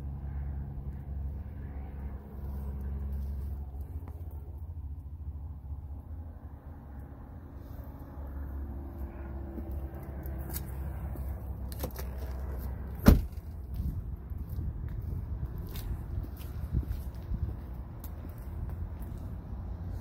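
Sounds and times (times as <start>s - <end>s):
car door thud: 13.0s - 13.4s.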